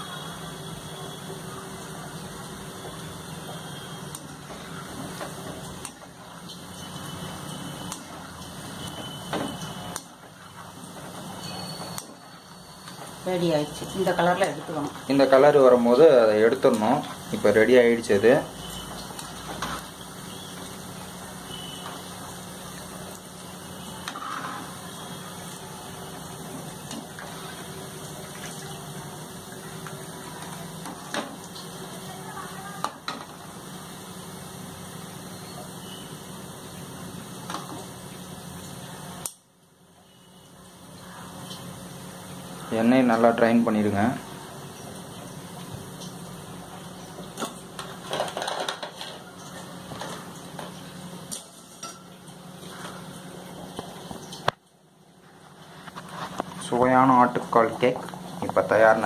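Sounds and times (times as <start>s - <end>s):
hot oil bubbling and sizzling: 0.0s - 59.0s
fried pieces clattering onto plate: 47.4s - 52.1s.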